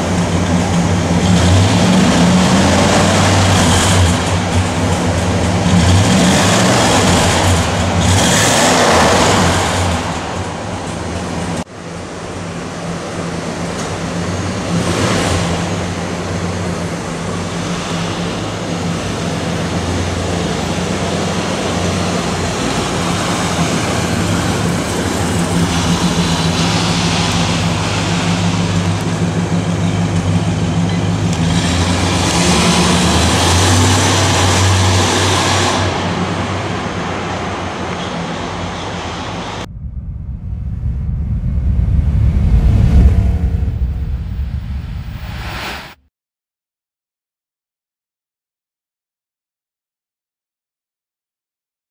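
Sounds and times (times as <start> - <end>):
car engine running: 39.6 - 45.5.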